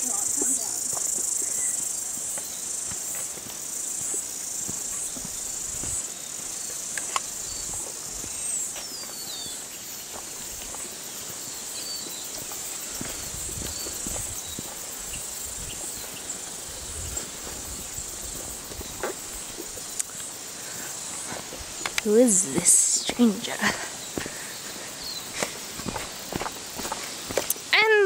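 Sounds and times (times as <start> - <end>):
footsteps on dirt path: 0.0 - 27.7
high-pitched insect chorus: 0.0 - 28.0.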